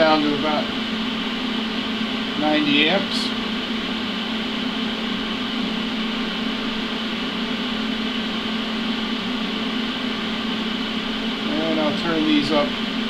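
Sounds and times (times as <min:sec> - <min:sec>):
cooling fan whirring: 0:00.0 - 0:13.0.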